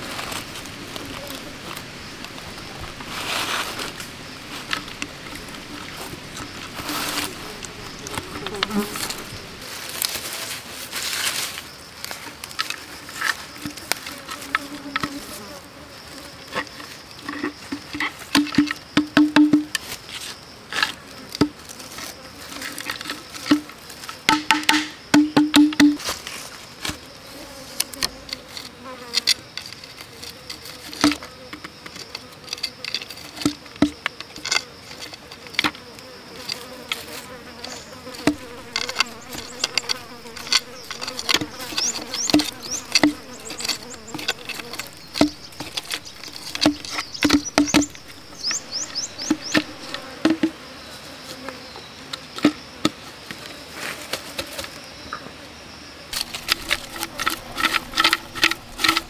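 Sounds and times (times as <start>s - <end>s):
insect buzzing: 0.0s - 59.0s
knife knocking and scraping bamboo: 0.2s - 9.4s, 16.6s - 21.6s, 22.7s - 26.2s, 36.4s - 50.6s, 56.1s - 59.0s.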